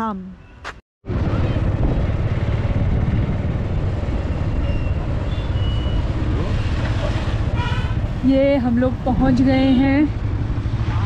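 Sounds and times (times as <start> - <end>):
vehicle rumble from on board: 1.0 - 11.0.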